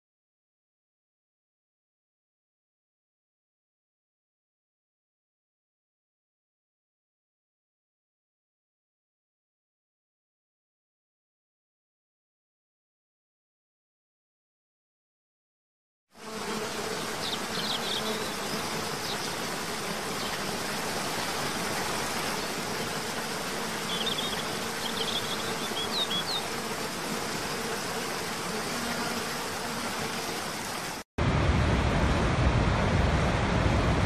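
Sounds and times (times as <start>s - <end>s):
deep roar of waterfall: 31.2s - 34.0s.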